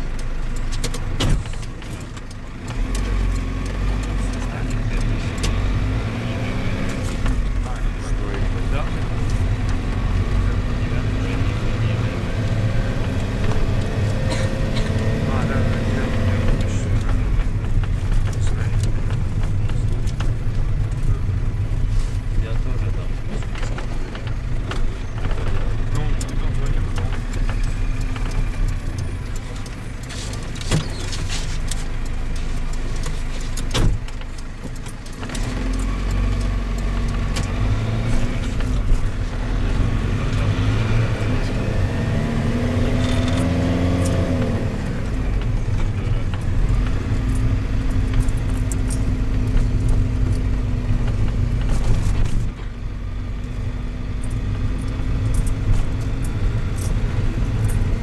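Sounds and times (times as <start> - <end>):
minibus engine and road noise: 0.0 - 58.0.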